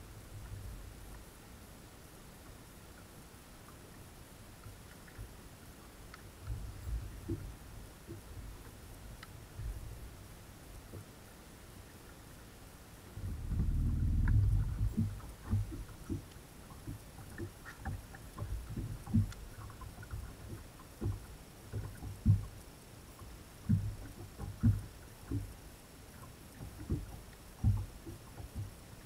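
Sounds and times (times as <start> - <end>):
rumbling bump: 13.2 - 15.2.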